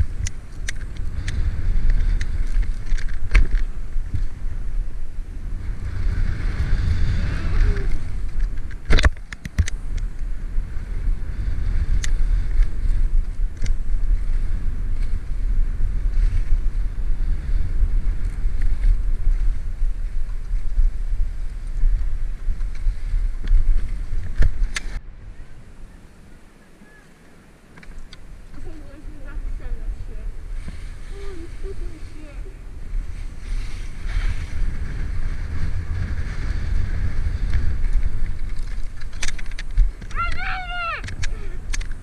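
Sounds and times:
wind buffeting microphone: 0.0s - 42.0s
skis scraping on snow: 10.2s - 25.0s, 28.3s - 40.0s.

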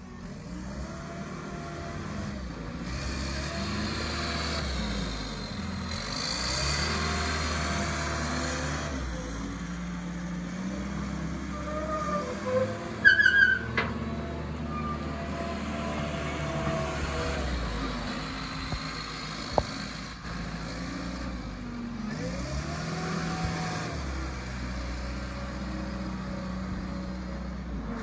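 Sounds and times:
diesel engine running: 0.0s - 28.0s
high squeals: 11.5s - 14.0s, 14.6s - 15.3s.

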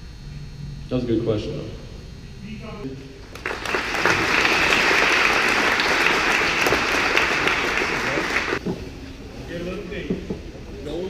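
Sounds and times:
audience applauding: 3.2s - 8.6s.

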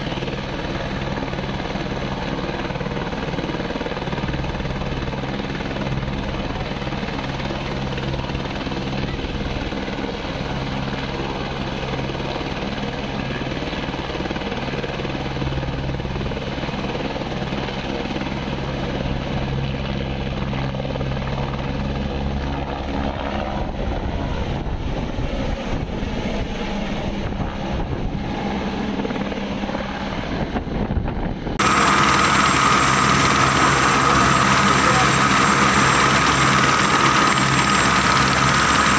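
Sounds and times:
helicopter idling: 0.0s - 38.9s
high turbine whine: 22.5s - 38.9s.

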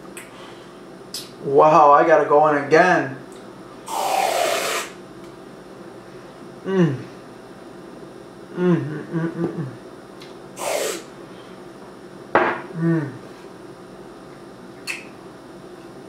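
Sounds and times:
aerosol can spray hiss: 3.9s - 5.0s, 10.6s - 11.0s
person humming mmm: 6.6s - 7.2s, 8.5s - 9.8s, 12.7s - 13.3s.

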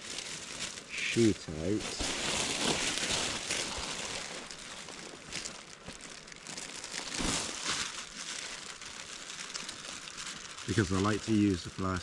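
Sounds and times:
plastic sheet crinkling: 0.0s - 12.0s.

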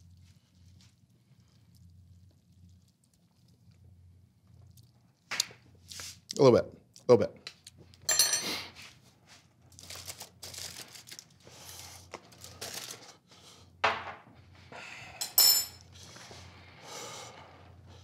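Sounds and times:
utensils and dishes clinking: 8.1s - 8.7s, 15.2s - 15.9s
aluminium foil rustling: 9.6s - 13.2s
loud ringing clink: 15.2s - 15.8s.

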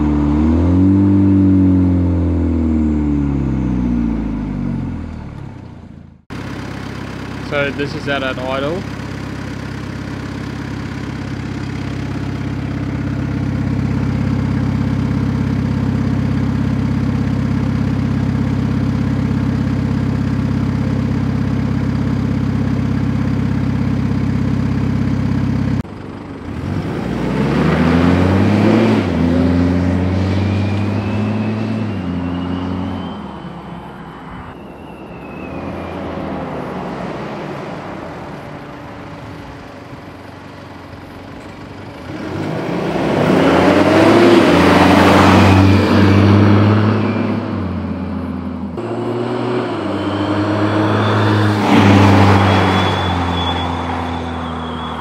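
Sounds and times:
car accelerating: 0.0s - 55.0s
car exhaust idling: 4.9s - 26.6s, 38.6s - 42.2s.

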